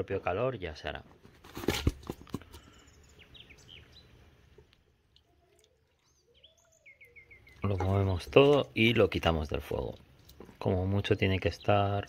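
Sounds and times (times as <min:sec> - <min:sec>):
faint bird chirps: 0:05.2 - 0:08.2.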